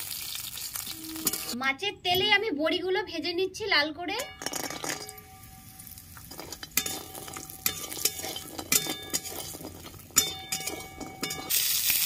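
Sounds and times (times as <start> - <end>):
light frying sizzle: 0.0 - 1.6, 4.9 - 12.0
metal spatula scraping metal pan: 0.9 - 1.6, 4.2 - 11.7
pan ringing: 0.9 - 1.6, 4.2 - 11.6.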